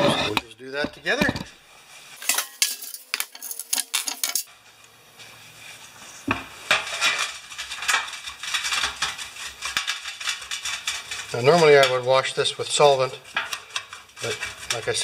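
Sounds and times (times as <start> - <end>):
toothbrush scrubbing metal: 6.8 - 15.0.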